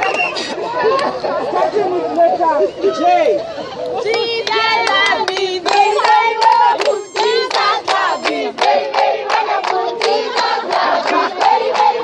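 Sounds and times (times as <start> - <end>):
hands clapping in time: 4.0 - 12.0
group singing loudly: 4.1 - 12.0.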